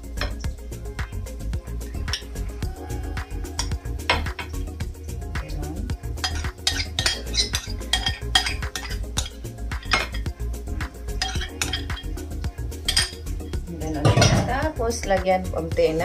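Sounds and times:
spoon scraping ceramic bowl: 6.2s - 10.3s, 11.2s - 12.2s, 12.8s - 13.3s.

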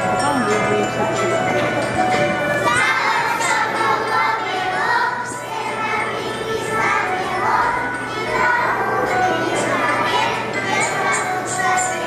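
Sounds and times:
accompanying music: 0.0s - 12.0s
children singing together: 2.1s - 12.0s.

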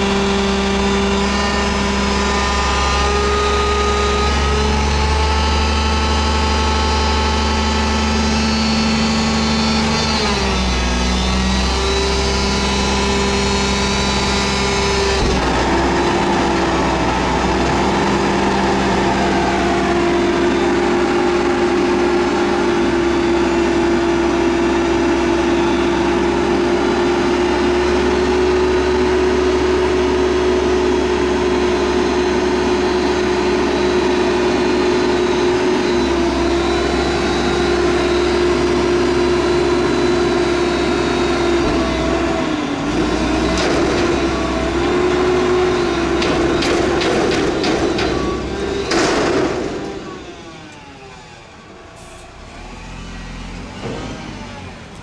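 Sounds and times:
garbage truck diesel engine: 0.0s - 55.0s.

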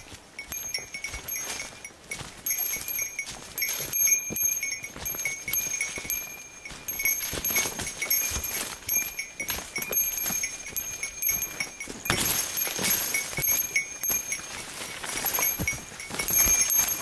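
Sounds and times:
footsteps crunching through leaves: 0.0s - 17.0s
small metal bell jingling: 0.0s - 17.0s.

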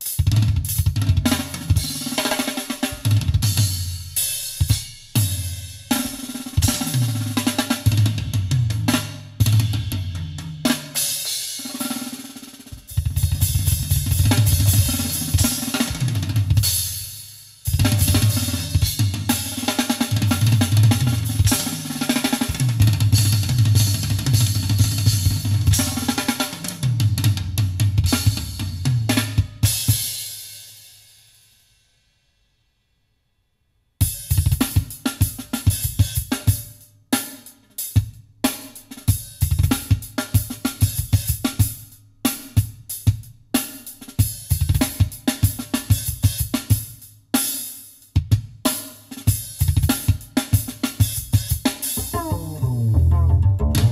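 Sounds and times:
drum kit: 0.0s - 30.3s, 34.0s - 53.9s
deep rhythmic bass line: 52.0s - 53.9s.

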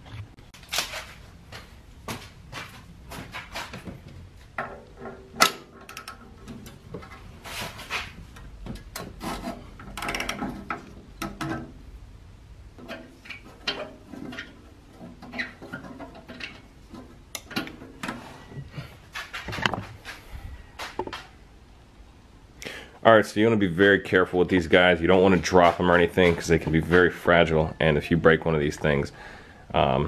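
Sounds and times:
metal tool scraping: 9.0s - 11.6s.

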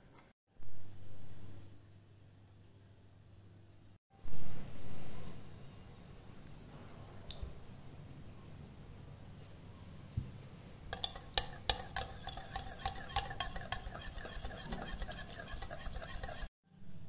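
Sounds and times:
whisk clinking against glass bowl: 10.9s - 16.5s.

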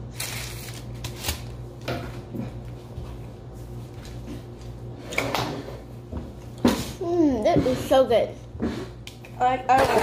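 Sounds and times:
paper wrappers rustling: 0.0s - 1.6s
steady low hum: 0.0s - 10.0s.

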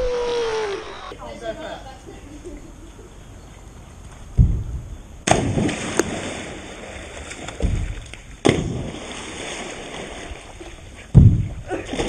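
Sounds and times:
splashes into swimming pool: 5.2s - 11.1s, 11.7s - 12.0s
dull thump: 11.1s - 11.6s.

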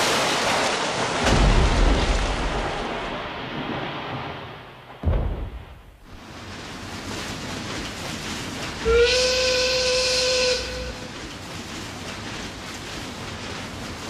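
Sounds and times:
steam whistle blast: 8.8s - 11.1s.

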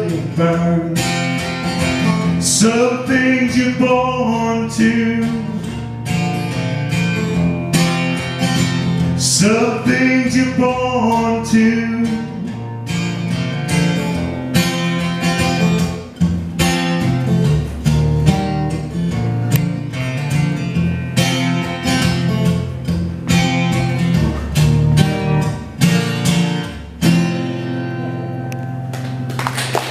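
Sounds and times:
acoustic guitar strumming: 0.0s - 29.8s.

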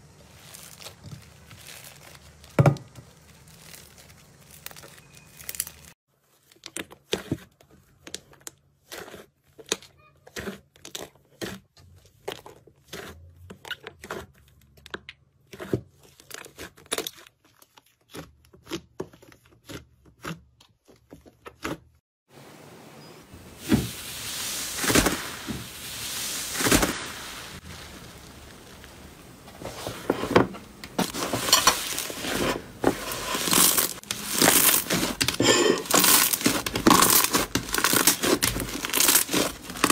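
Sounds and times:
slime tearing: 0.2s - 6.0s, 33.3s - 39.9s.

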